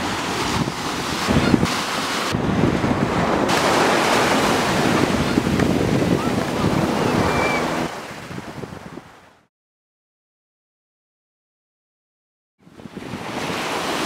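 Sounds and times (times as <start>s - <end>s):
wind buffeting microphone: 0.0s - 9.3s, 12.6s - 14.0s
ocean waves breaking: 0.0s - 9.5s, 12.6s - 14.0s.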